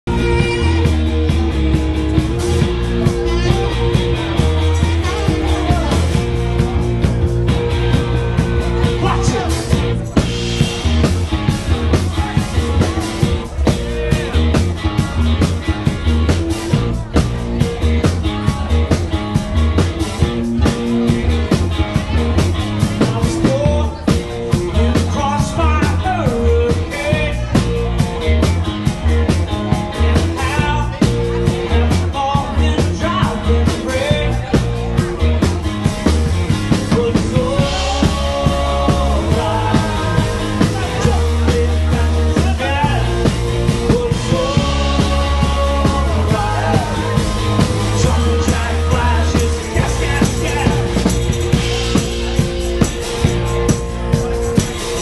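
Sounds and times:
drum kit beat: 0.0 - 55.0
electric guitars: 0.0 - 55.0
person singing: 0.1 - 1.2, 36.7 - 52.0.

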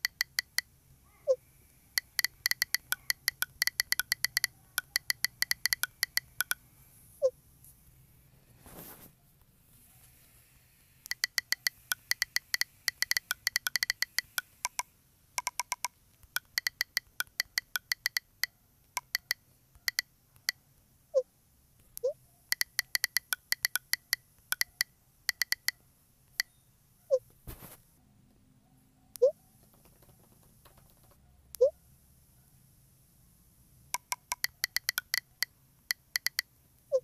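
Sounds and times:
phone keyboard typing clicks: 0.0 - 0.7, 1.9 - 6.6, 11.0 - 20.6, 21.9 - 26.5, 33.9 - 37.0.

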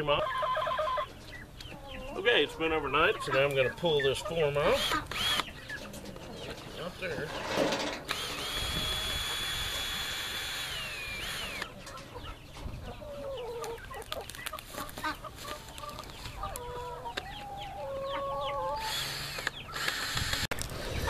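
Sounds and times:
hens clucking: 0.0 - 10.0, 10.8 - 19.8
cordless drill whining: 4.8 - 5.5, 8.1 - 11.7, 18.8 - 20.6.

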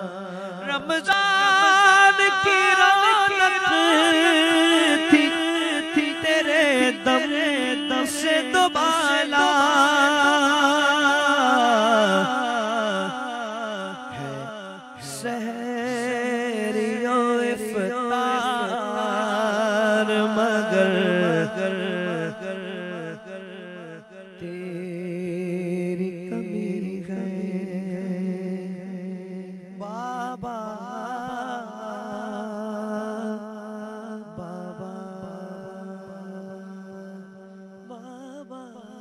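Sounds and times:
man singing devotional song: 0.0 - 39.0.

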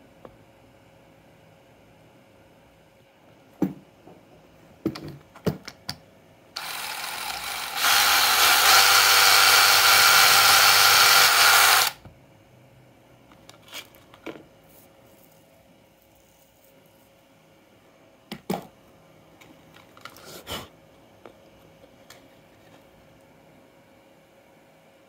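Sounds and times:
cordless drill boring plastic: 6.6 - 12.0.

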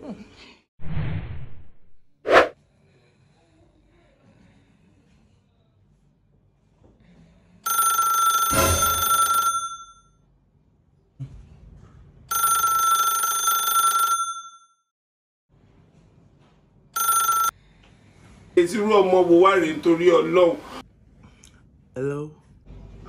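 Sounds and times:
phone ringtone: 7.7 - 10.1, 12.3 - 14.8, 17.0 - 17.6.

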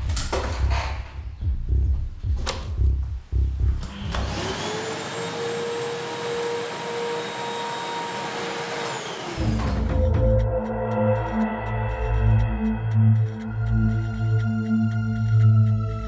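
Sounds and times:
knocks and clicks: 0.0 - 4.3
vacuum cleaner motor whine: 3.9 - 10.0.

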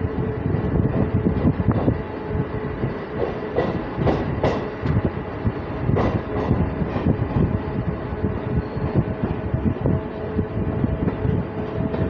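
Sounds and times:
train rumble: 0.0 - 12.0
train wheels clacking over rail joints: 3.1 - 5.1, 5.9 - 7.6.

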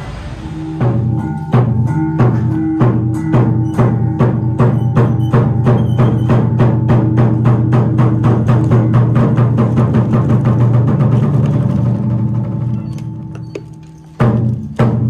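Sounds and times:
low held note: 0.0 - 4.0
sharp percussion strikes: 0.0 - 10.0.

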